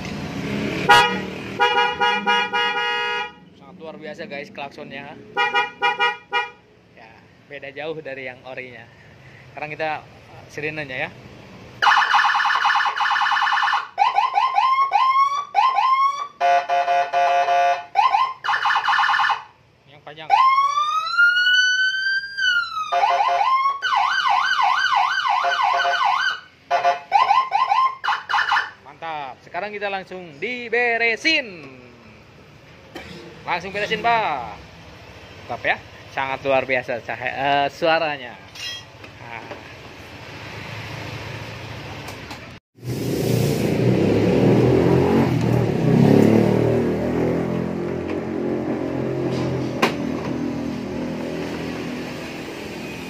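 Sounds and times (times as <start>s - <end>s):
electronic siren wailing and yelping: 11.8s - 16.4s, 17.8s - 19.5s, 20.3s - 28.8s.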